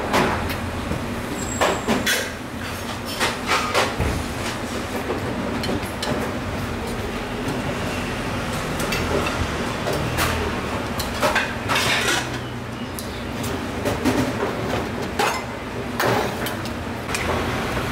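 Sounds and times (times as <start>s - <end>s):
steady background hum: 0.0s - 17.9s
metal dishes and utensils clinking: 8.6s - 17.3s.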